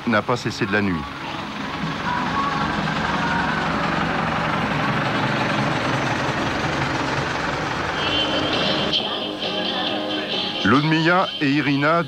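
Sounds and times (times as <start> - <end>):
road noise on wet road: 0.0 - 9.4
van engine running: 0.0 - 12.0.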